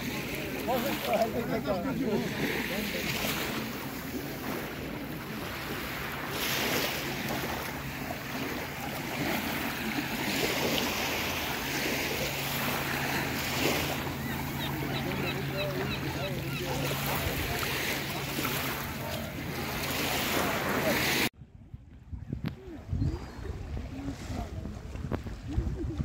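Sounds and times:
small waves washing onto sand: 0:00.0 - 0:21.3
wind rumbling on microphone: 0:21.3 - 0:26.0.

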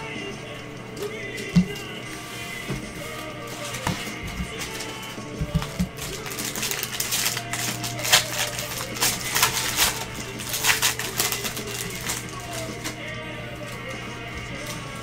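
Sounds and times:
background music: 0:00.0 - 0:15.0
wrapper crinkling and tearing: 0:03.0 - 0:15.0.

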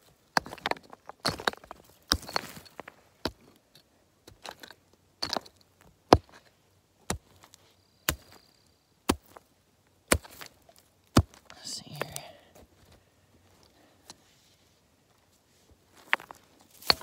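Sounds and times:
digging tool striking rocky ground: 0:00.3 - 0:08.5, 0:09.1 - 0:12.2, 0:16.1 - 0:17.0.

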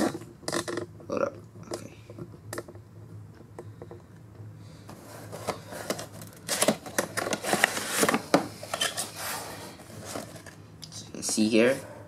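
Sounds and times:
cardboard box rustling: 0:04.9 - 0:10.6.

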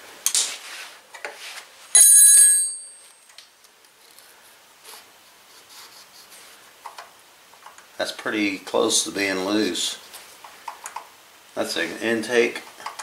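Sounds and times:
wrench ringing on metal: 0:02.0 - 0:03.2.

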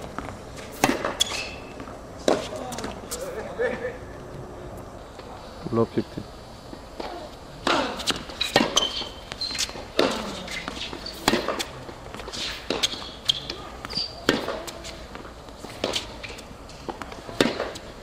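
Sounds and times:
tennis ball bouncing: 0:00.0 - 0:03.0, 0:07.0 - 0:17.9
rackets striking tennis ball: 0:00.0 - 0:03.2, 0:06.7 - 0:18.0.

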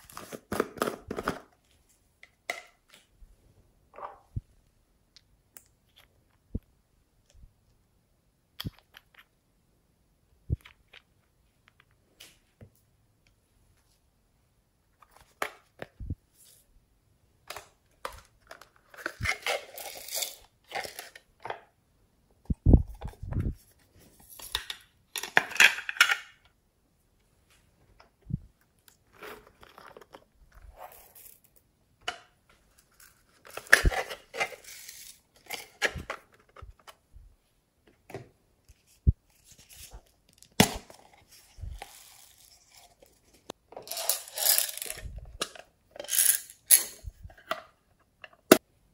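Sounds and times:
rustling and scraping: 0:29.0 - 0:31.5, 0:38.6 - 0:47.4.

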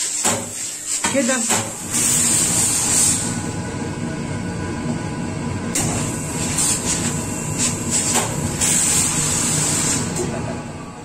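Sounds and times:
steam iron hissing: 0:00.0 - 0:03.4, 0:05.8 - 0:10.2.

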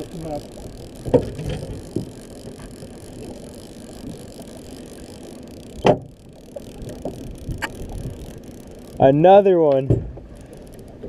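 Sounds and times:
boat engine hum: 0:00.0 - 0:11.0
water noise: 0:00.0 - 0:11.0
wind: 0:00.0 - 0:11.0.

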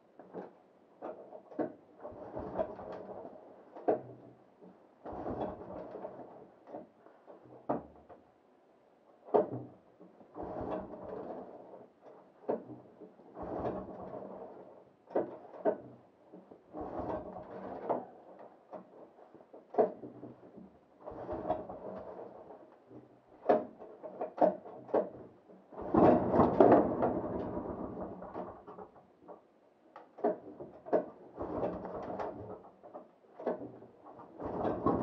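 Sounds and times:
clicks and knocks of handling: 0:28.2 - 0:35.0.

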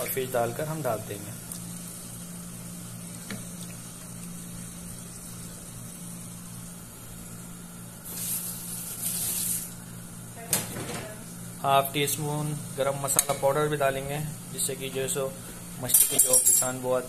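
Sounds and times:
steady low hum: 0:00.0 - 0:17.0
gravy sizzling in a pan: 0:07.6 - 0:09.9.

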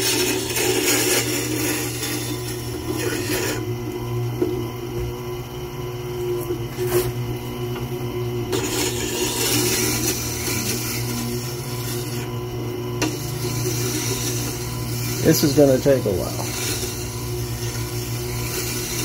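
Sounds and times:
steel grinding on wet stone: 0:00.0 - 0:03.6, 0:08.5 - 0:12.3, 0:13.0 - 0:19.0
grinder motor humming: 0:00.0 - 0:19.0.

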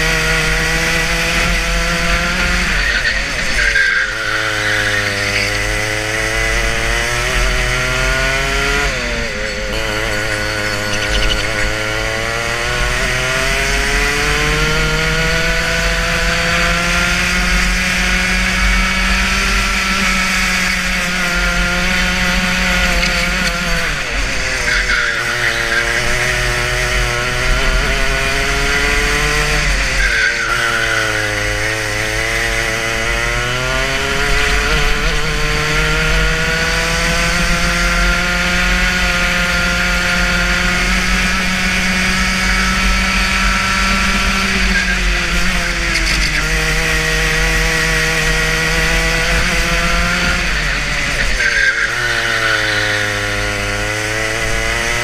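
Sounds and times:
racing kart engine revving: 0:00.0 - 0:55.0.

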